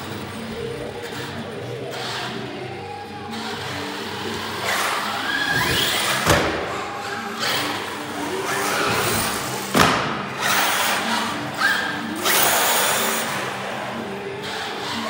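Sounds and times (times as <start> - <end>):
toy car hard thump: 9.7 - 10.6.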